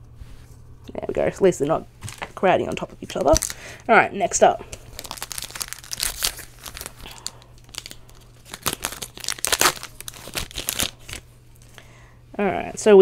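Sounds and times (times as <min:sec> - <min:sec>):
foil wrapper crinkling: 0:03.1 - 0:03.8, 0:04.7 - 0:11.7.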